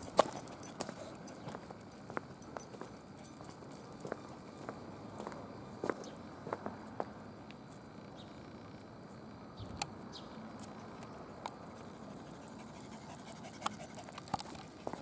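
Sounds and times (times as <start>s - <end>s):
dog panting: 11.8s - 15.0s
sharp clicks on asphalt: 13.5s - 15.0s
footsteps on asphalt: 13.6s - 15.0s.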